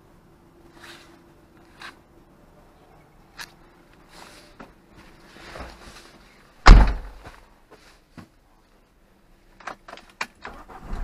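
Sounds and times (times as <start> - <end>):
car door thud: 6.6 - 7.3.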